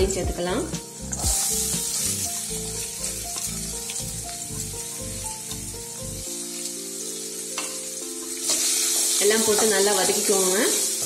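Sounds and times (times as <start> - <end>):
background music: 0.0 - 11.0
onions sizzling in oil: 0.5 - 11.0.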